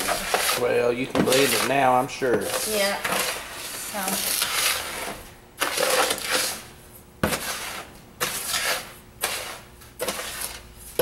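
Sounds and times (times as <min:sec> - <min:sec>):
spoon scraping dry salt: 0:07.3 - 0:10.6.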